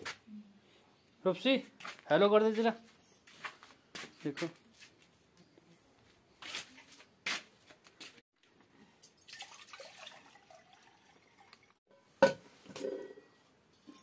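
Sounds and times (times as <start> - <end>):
water pouring into metal tumbler: 9.0 - 11.8.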